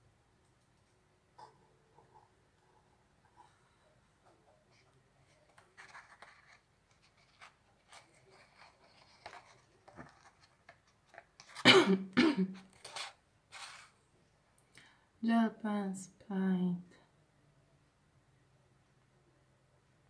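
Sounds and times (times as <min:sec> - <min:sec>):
paper pages rustling: 0:05.3 - 0:11.6, 0:12.6 - 0:14.0
person coughing: 0:11.6 - 0:12.6
breaths: 0:14.7 - 0:15.2.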